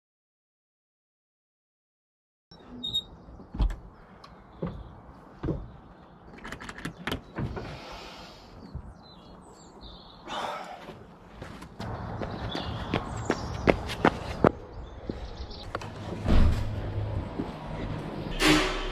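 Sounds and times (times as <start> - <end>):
birds chirping: 2.5 - 16.2.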